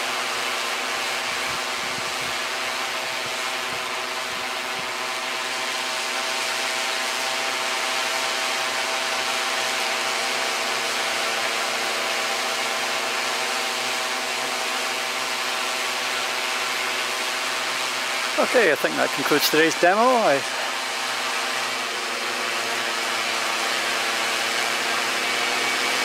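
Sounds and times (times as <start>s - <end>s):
drone propellers whining: 0.7s - 26.0s.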